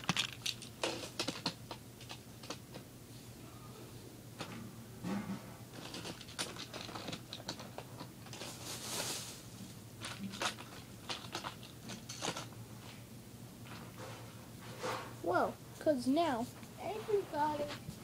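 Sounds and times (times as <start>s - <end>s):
faint steady hum: 0.0s - 18.0s
soft rushing hiss: 8.4s - 9.8s, 14.9s - 18.0s.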